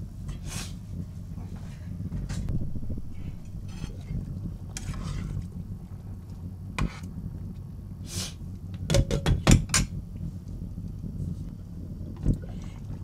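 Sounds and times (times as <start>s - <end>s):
pot boiling with low rumble: 0.0s - 13.0s
utensil scraping pot: 2.4s - 5.6s, 6.8s - 7.2s.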